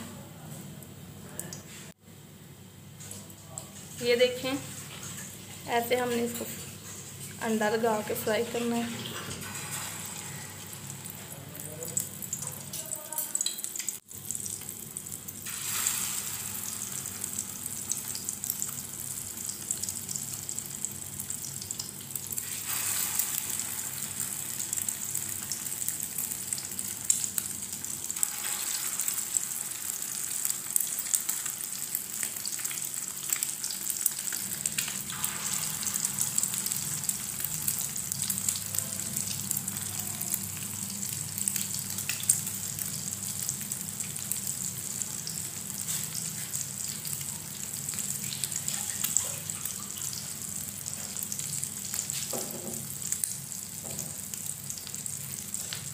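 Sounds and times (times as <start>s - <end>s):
food sizzling in hot fat: 3.0s - 55.9s.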